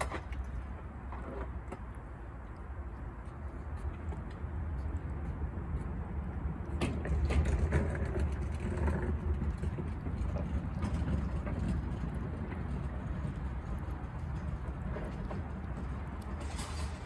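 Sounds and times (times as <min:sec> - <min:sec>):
steady low rumble: 0:01.9 - 0:17.0.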